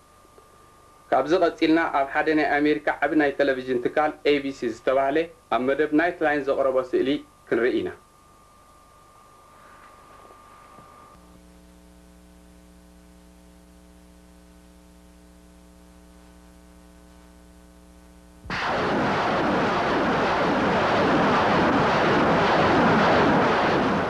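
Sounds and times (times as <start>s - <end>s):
low hum with overtones: 0.0s - 24.0s
gunfire and artillery explosions: 18.5s - 24.0s.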